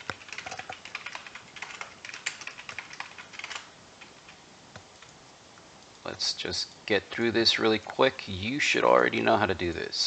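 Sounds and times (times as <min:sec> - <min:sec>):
typing on computer keyboard: 0:00.0 - 0:04.4.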